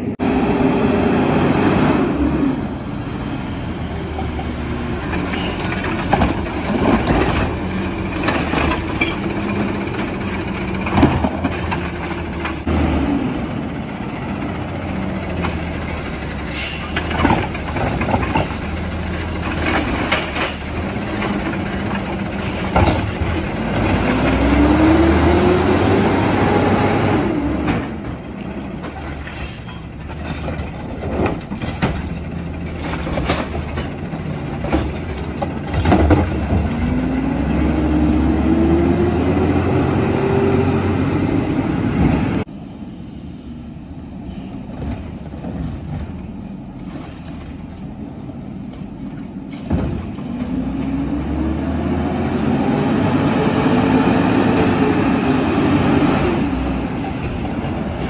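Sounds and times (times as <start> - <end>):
garbage truck engine revving: 0.0 - 29.5, 30.1 - 42.5, 50.2 - 58.0
clanks and knocks from truck arm: 19.6 - 23.4, 30.1 - 36.9, 49.5 - 50.5.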